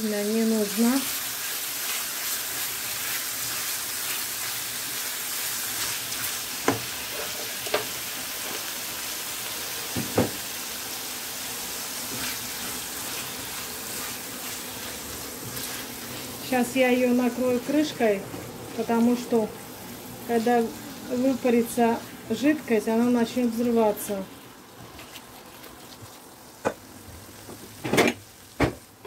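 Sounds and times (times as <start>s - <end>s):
chicken livers sizzling in butter: 0.0s - 26.6s
spatula stirring in pan: 0.6s - 8.7s, 11.8s - 17.7s.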